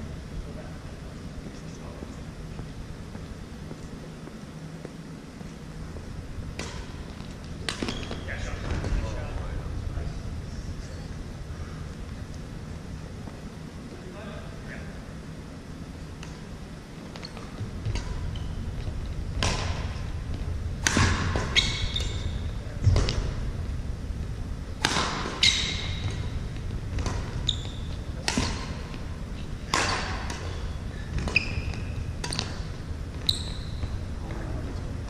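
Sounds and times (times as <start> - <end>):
sneakers squeaking: 2.6 - 9.6, 15.8 - 35.0
racket hitting shuttlecock: 6.5 - 8.2, 19.3 - 20.2, 20.8 - 23.4, 24.8 - 32.9.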